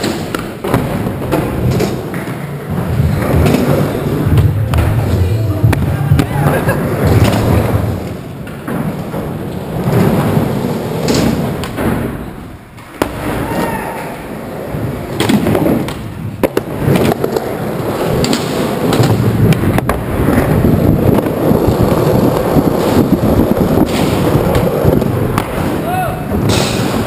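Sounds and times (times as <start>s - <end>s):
skateboard wheels rumbling on concrete: 0.0s - 27.0s
skateboards clacking on ground: 0.0s - 27.0s.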